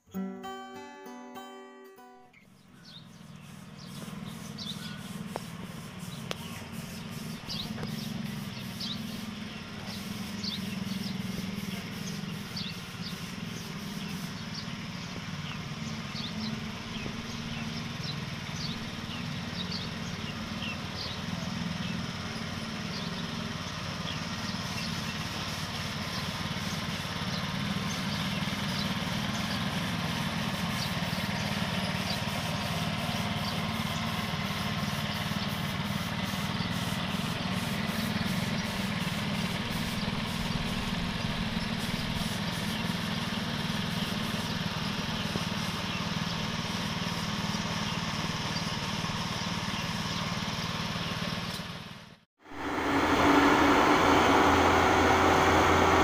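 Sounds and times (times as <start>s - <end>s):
heavy diesel engine idling: 14.5s - 56.0s.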